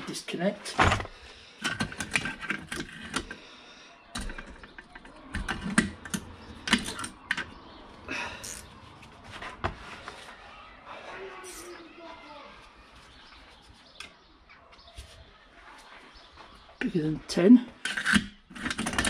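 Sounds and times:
hand tools clicking and clinking: 0:00.8 - 0:03.4, 0:04.1 - 0:07.6, 0:17.8 - 0:19.0.

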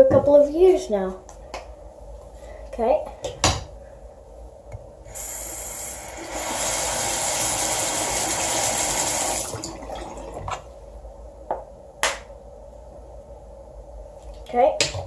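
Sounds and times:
tap water running: 0:05.1 - 0:10.7.

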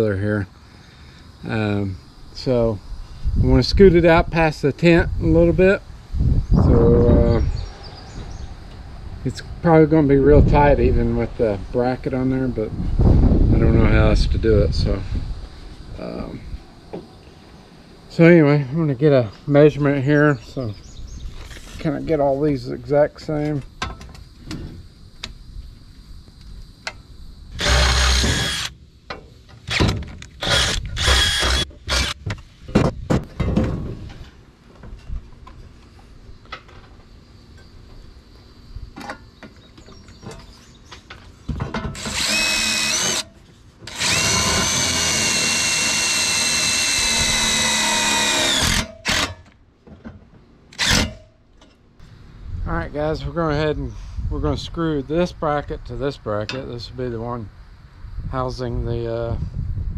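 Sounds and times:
cordless drill boring through steel: 0:27.6 - 0:28.7, 0:30.4 - 0:32.2, 0:42.0 - 0:43.3, 0:43.9 - 0:49.3, 0:50.8 - 0:51.1.

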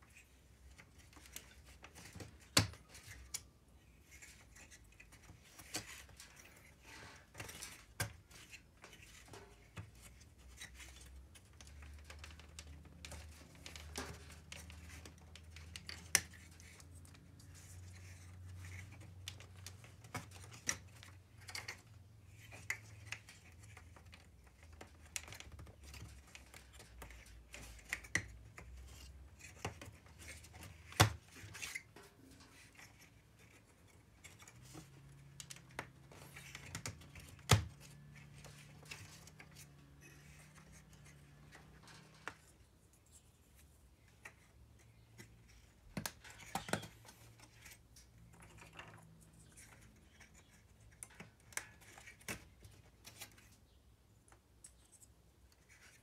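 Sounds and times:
wooden pieces clicking and scraping: 0:00.1 - 0:56.0.

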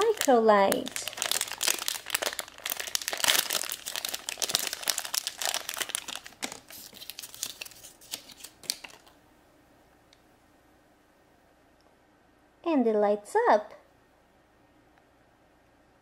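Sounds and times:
foil bag crinkling: 0:00.0 - 0:09.2
thin wrapper crinkling: 0:00.0 - 0:09.2.

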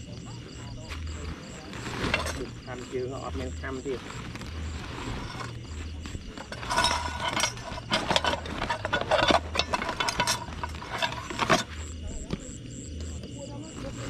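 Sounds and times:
hard objects clinking and knocking: 0:01.9 - 0:02.6, 0:05.0 - 0:12.4.

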